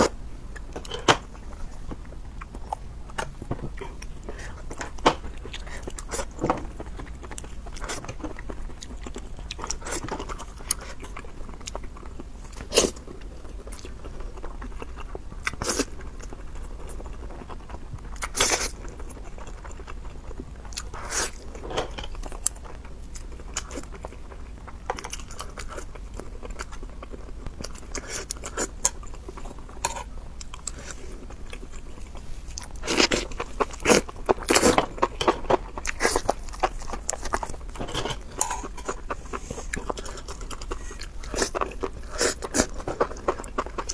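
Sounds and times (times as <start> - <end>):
biting and chewing food: 0.0 - 43.9
sharp crunch of food: 32.5 - 43.9.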